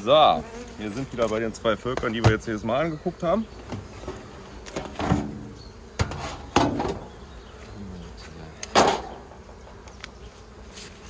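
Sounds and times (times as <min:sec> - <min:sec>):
bees buzzing: 0:00.0 - 0:11.0
wooden knocks from beehive: 0:01.9 - 0:02.6, 0:03.6 - 0:07.2, 0:08.6 - 0:09.9.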